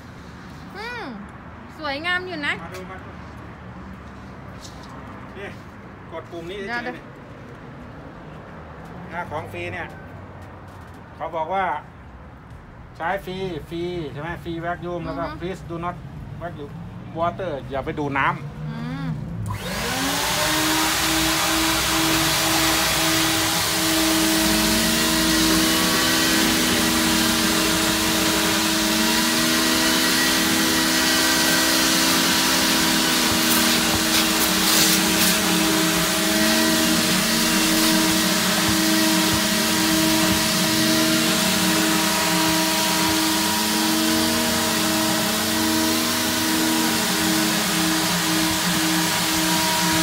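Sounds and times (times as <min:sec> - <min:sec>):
vacuum motor whining: 0:19.4 - 0:50.0.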